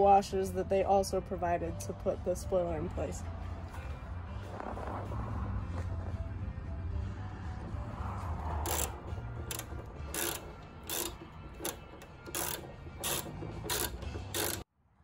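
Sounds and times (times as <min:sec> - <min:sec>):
hand ratchet clicking: 0:08.6 - 0:14.7.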